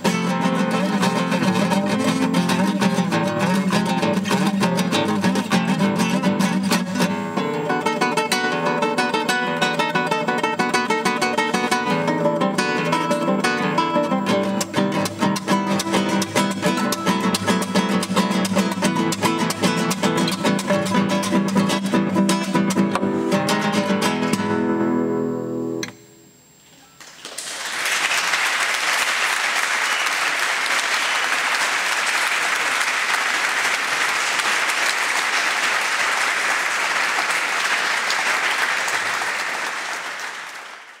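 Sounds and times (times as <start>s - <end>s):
classical guitar strumming chords: 0.0s - 26.4s
audience applauding: 27.0s - 41.0s.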